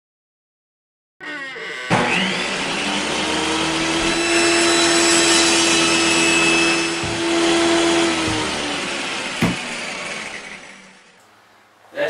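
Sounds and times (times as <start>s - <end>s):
circular saw whirring: 1.2s - 11.2s.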